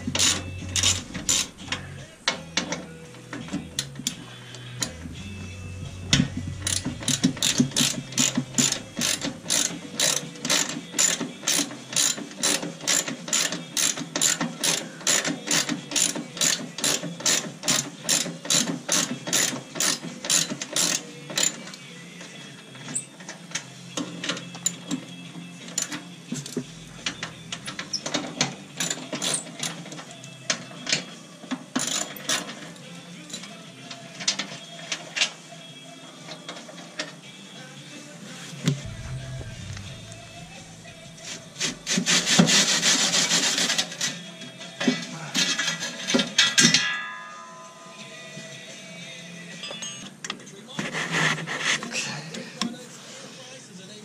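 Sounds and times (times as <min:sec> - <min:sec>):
ratchet wrench clicking: 0:00.1 - 0:01.9, 0:06.6 - 0:21.6.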